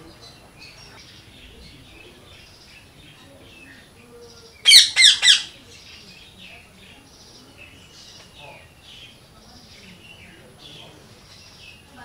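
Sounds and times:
small birds chirping: 0:00.0 - 0:12.0
parakeet calls: 0:00.1 - 0:06.3.

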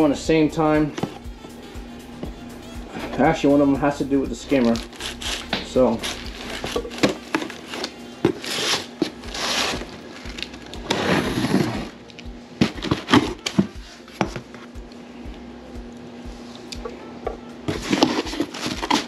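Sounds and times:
packing material rustling: 0:04.5 - 0:14.0, 0:17.7 - 0:19.0.

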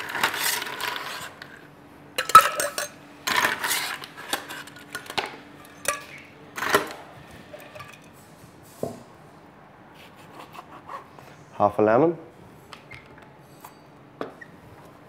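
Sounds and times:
ice clattering into metal tin: 0:00.0 - 0:01.4, 0:02.2 - 0:05.2.

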